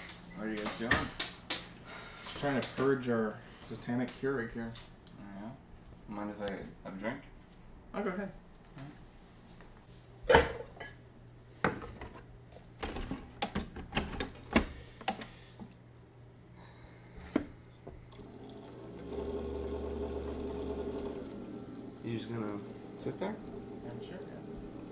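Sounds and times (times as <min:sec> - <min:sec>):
coffee maker humming: 0:17.2 - 0:24.9.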